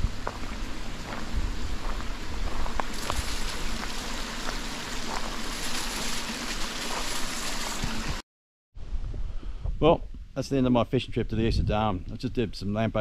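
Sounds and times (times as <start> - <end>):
creek water rushing: 0.0 - 8.2.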